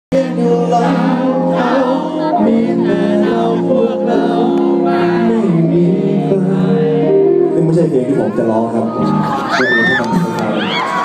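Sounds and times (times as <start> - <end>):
man singing into microphone: 0.1 - 7.9
amplified music: 0.1 - 11.0.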